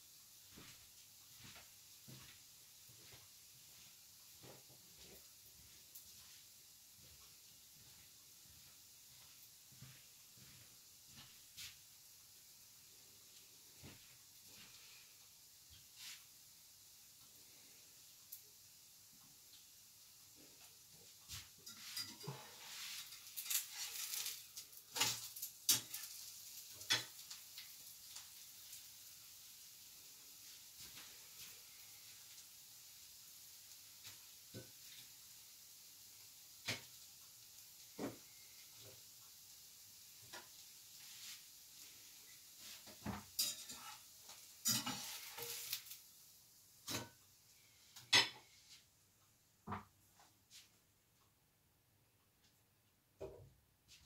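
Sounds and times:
spatula scraping a frying pan: 21.4s - 28.2s, 42.3s - 46.0s, 46.8s - 47.2s.

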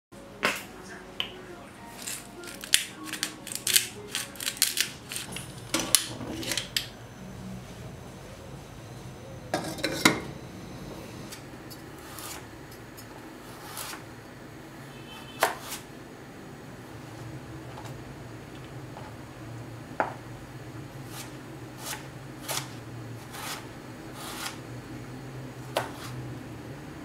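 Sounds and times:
utensils and dishes clinking: 1.8s - 7.0s, 9.5s - 10.4s
dishes clattering: 2.0s - 6.9s, 9.5s - 10.4s
knife on plastic cutting board: 15.4s - 15.8s, 21.1s - 24.6s, 25.8s - 26.2s.

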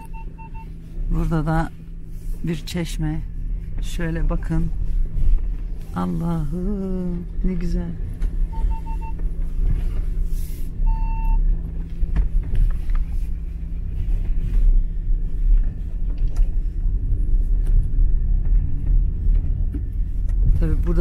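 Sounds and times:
electronic beeps: 0.0s - 0.7s, 8.5s - 9.2s, 10.9s - 11.4s.

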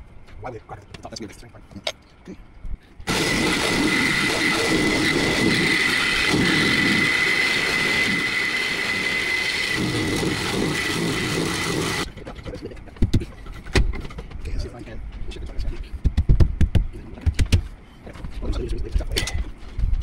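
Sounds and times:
reciprocating saw cutting metal: 3.1s - 12.1s.

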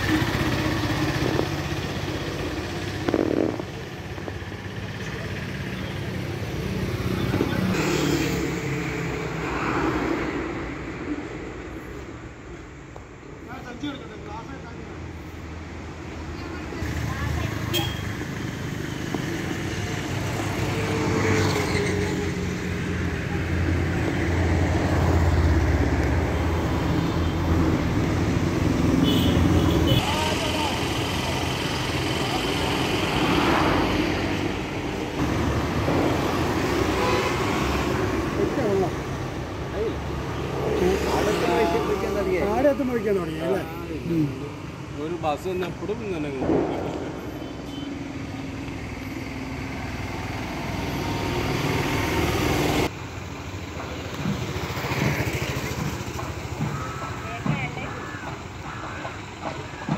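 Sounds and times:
engine idling: 0.0s - 6.6s
vehicle engine rumbling: 0.0s - 59.9s.

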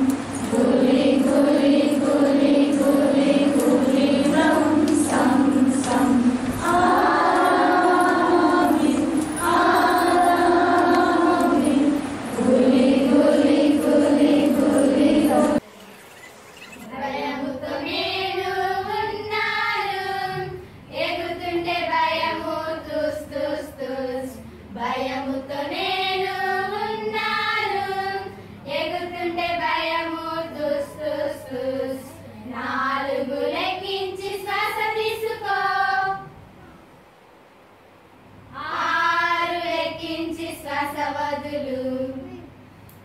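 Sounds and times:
women singing in unison: 0.0s - 15.6s, 16.8s - 36.4s, 38.5s - 42.3s.

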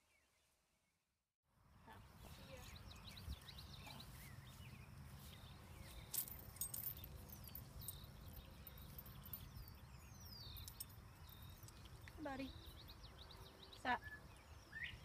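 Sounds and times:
birds whistling: 2.8s - 15.0s
bridle metal clinking: 5.8s - 13.0s.

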